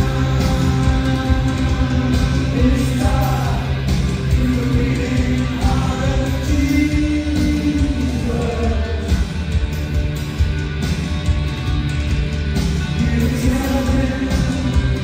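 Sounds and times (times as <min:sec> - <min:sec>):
rock band playing live: 0:00.0 - 0:15.0.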